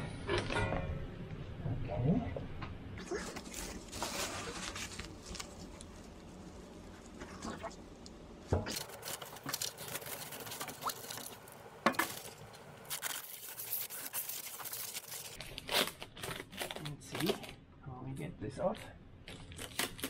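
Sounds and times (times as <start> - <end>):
foam packing scraping: 3.0 - 7.8, 8.6 - 17.4
plastic film crinkling: 3.0 - 7.8, 8.6 - 17.6, 18.8 - 20.0.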